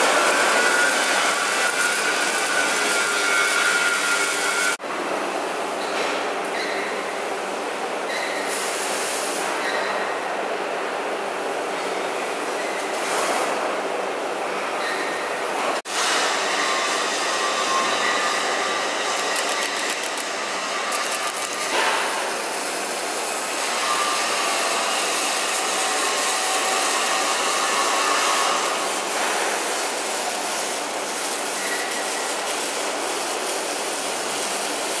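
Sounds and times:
arc welding sizzle: 0:00.0 - 0:04.8, 0:15.9 - 0:35.0
workshop machinery noise: 0:00.0 - 0:35.0.

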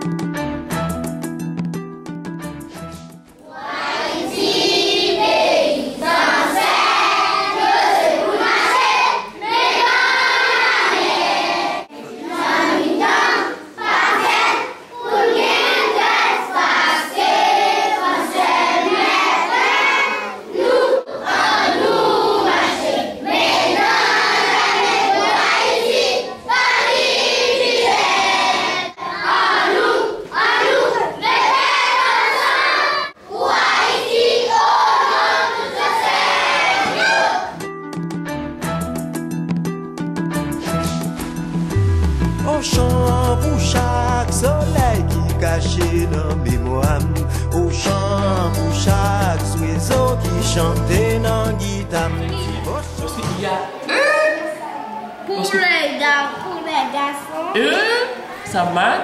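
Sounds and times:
children singing together: 0:03.4 - 0:37.6.

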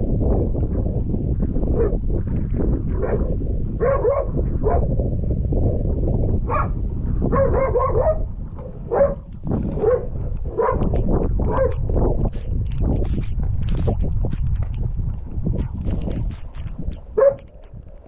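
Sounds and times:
low rumbling noise: 0:00.0 - 0:18.0
dog barking: 0:01.8 - 0:02.0, 0:02.9 - 0:04.9, 0:06.5 - 0:11.8, 0:17.2 - 0:17.5.

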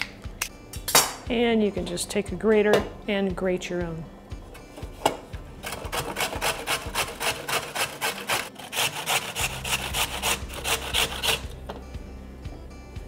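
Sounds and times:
carrot grated on metal grater: 0:05.6 - 0:11.6.

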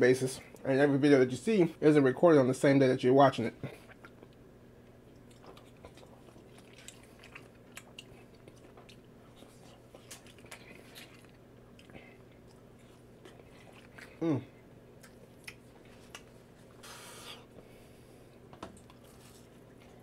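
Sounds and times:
low steady hum: 0:00.0 - 0:20.0
chewing: 0:03.7 - 0:17.6, 0:18.8 - 0:20.0.

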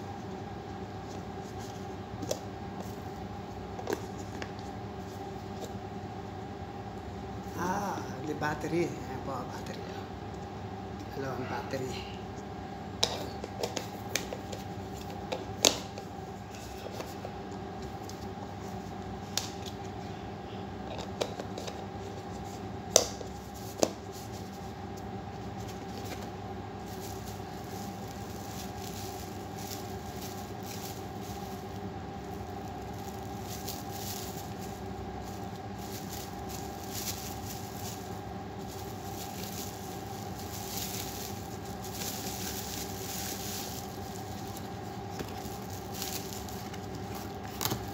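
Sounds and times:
steady background hum: 0:00.0 - 0:47.9
plastic bag rustling: 0:25.6 - 0:47.9.

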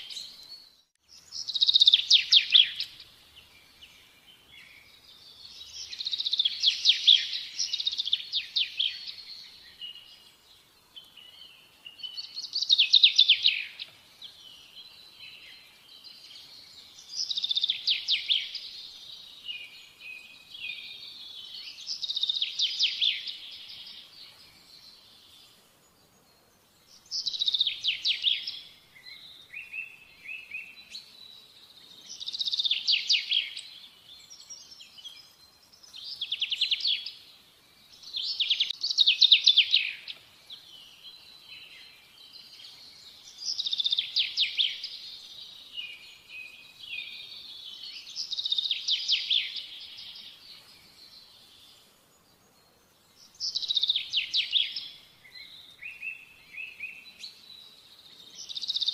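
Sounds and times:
soft bird chirps: 0:00.0 - 0:58.9
songbird trilling: 0:01.2 - 0:03.0, 0:27.0 - 0:31.0, 0:38.1 - 0:40.2, 0:43.3 - 0:50.4, 0:53.3 - 0:57.3.

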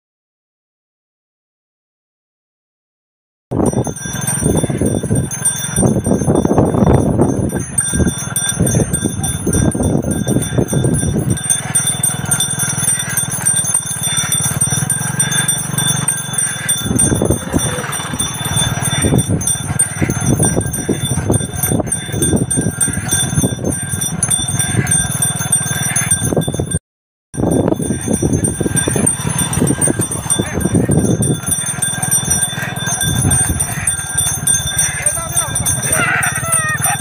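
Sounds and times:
bells jingling: 0:03.6 - 0:26.8, 0:27.4 - 0:37.0
wooden cart rattling: 0:03.7 - 0:26.4, 0:27.5 - 0:37.0
hooves clopping on tarmac: 0:07.5 - 0:26.2.

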